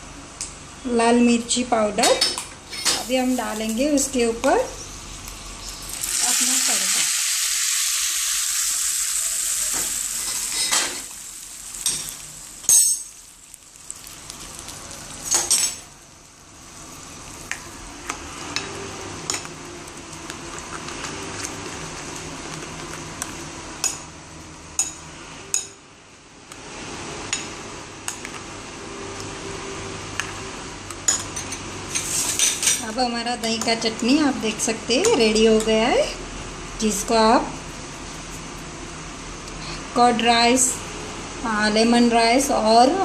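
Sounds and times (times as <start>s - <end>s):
hot oil sizzling: 2.6s - 25.0s, 31.4s - 33.0s.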